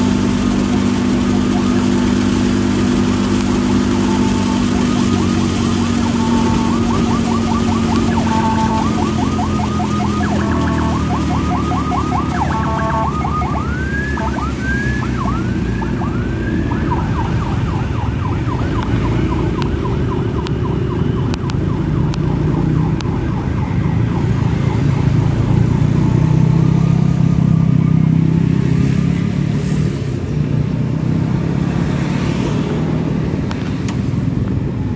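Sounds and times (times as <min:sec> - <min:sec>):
scooter engine: 0:00.0 - 0:15.0
emergency siren: 0:00.0 - 0:29.0
road noise: 0:00.0 - 0:34.9.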